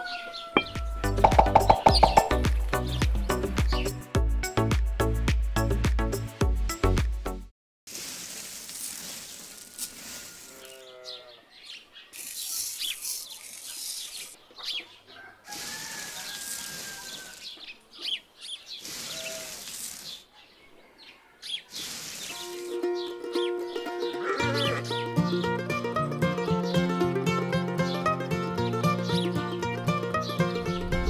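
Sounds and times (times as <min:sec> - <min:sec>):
pebbles pouring onto sand: 0:07.9 - 0:10.6, 0:18.8 - 0:20.2.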